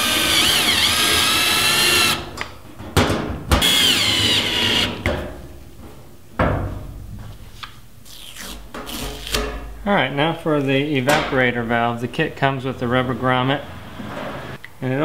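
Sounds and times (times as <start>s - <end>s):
drill-driver motor whine: 0.0s - 2.2s, 3.6s - 4.9s.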